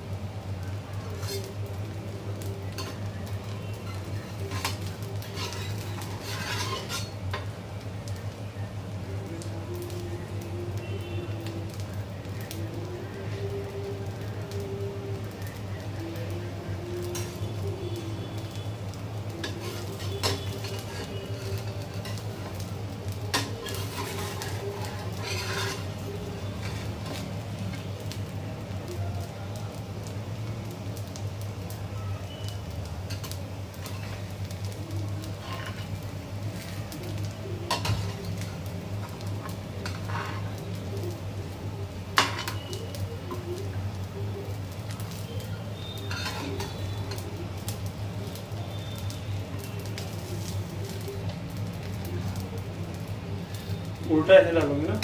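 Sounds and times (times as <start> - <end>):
faint sizzle: 0.0 - 55.0
spatula scraping pan: 1.1 - 1.6, 3.8 - 7.5, 19.4 - 22.6, 23.3 - 27.3, 33.1 - 34.3, 35.2 - 36.0, 37.7 - 40.8, 46.0 - 47.2
spatula clinking on metal pan: 4.5 - 7.4
metal spatula tapping on pan: 42.2 - 42.6.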